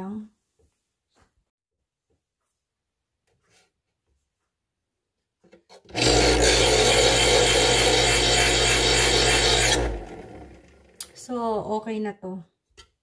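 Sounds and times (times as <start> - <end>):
electric knife sharpener motor humming: 5.9 - 11.1.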